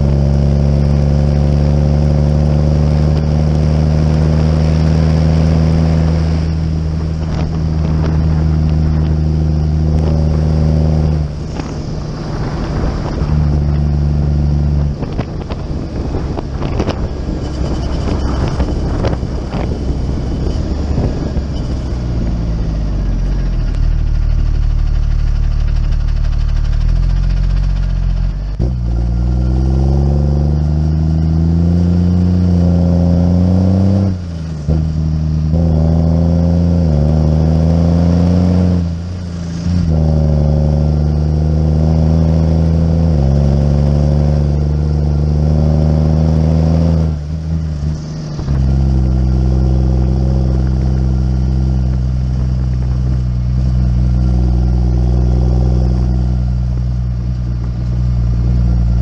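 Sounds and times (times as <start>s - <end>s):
engine running under load: 0.0s - 59.0s.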